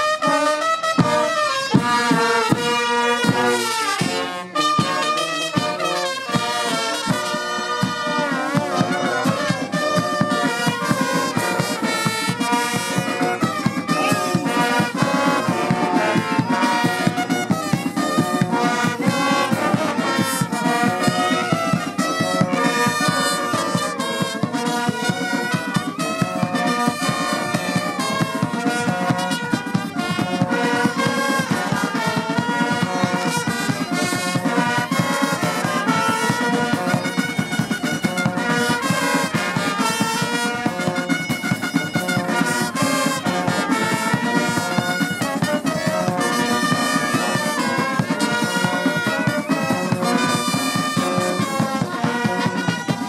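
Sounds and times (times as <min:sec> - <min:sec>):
marching brass band playing: 0:00.0 - 0:53.0
steady drum beat: 0:00.0 - 0:53.0.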